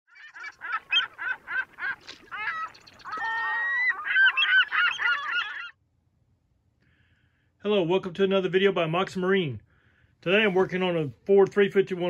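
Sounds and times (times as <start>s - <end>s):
geese honking: 0.1s - 5.7s.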